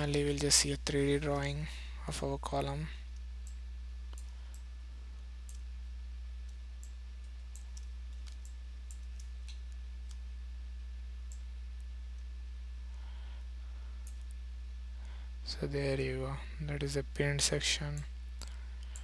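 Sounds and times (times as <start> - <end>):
low electrical hum: 0.0 - 19.0
computer mouse clicking: 6.4 - 10.2, 18.4 - 19.0.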